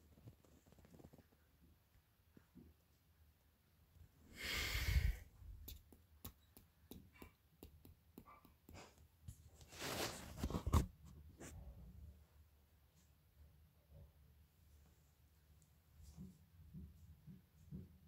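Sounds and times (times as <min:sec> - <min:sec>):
rushes of breath: 0:04.3 - 0:05.3.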